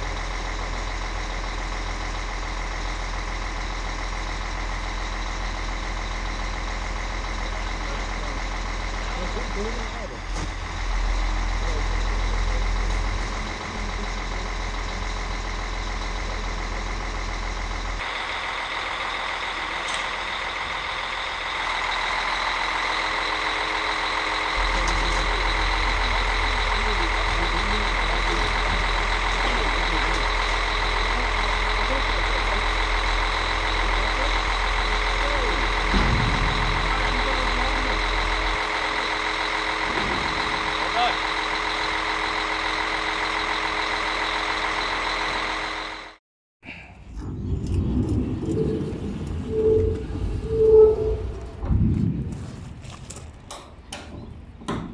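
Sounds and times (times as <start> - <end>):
crane engine drone: 0.0 - 54.9
high steady whine: 31.9 - 46.2, 47.1 - 52.4
wind rumble on microphone: 47.0 - 53.2.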